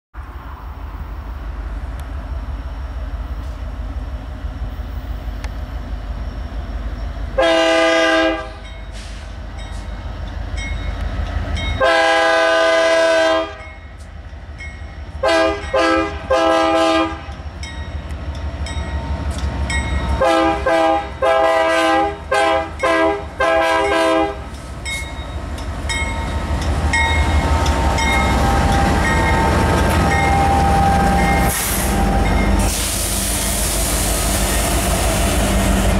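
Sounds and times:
diesel engines: 0:00.2 - 0:35.9
train rumble: 0:00.2 - 0:35.9
locomotive air horn blasts: 0:07.4 - 0:08.6, 0:11.8 - 0:13.6, 0:15.2 - 0:17.3, 0:20.2 - 0:24.4.

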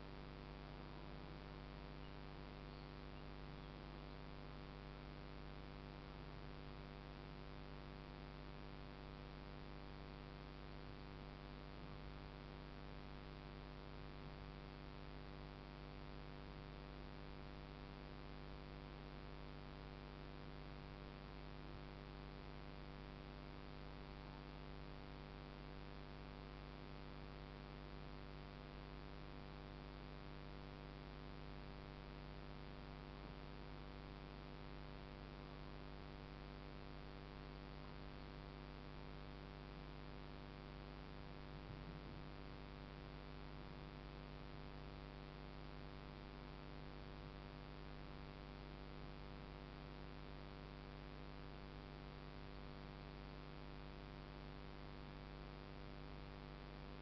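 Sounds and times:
electrical hum: 0:41.5 - 0:43.9.

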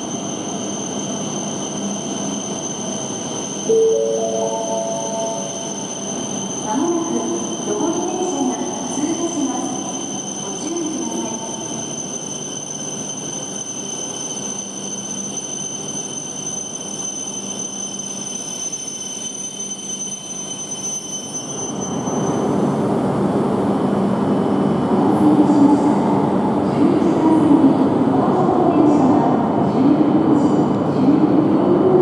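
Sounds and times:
train whining: 0:00.0 - 0:19.2.

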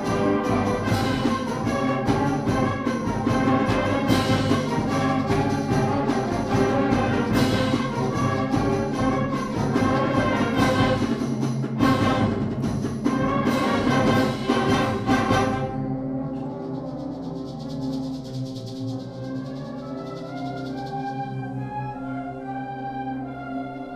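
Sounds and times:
concert band playing: 0:00.0 - 0:16.9.

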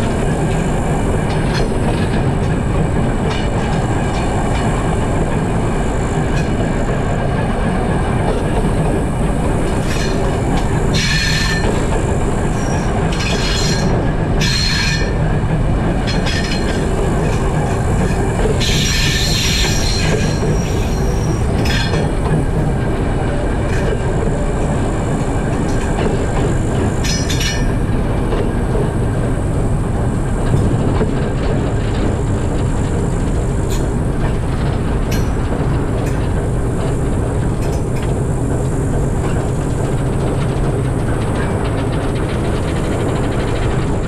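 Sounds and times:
diesel locomotive running: 0:00.0 - 0:44.0
wagons rumbling over rails: 0:00.0 - 0:44.0
high wheel squeal: 0:08.7 - 0:15.4, 0:16.0 - 0:22.5, 0:23.3 - 0:28.0.

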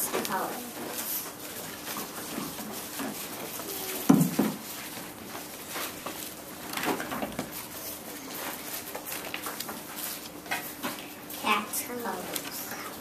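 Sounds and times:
pages rustling: 0:00.1 - 0:13.0
book thumping on table: 0:04.1 - 0:04.6.

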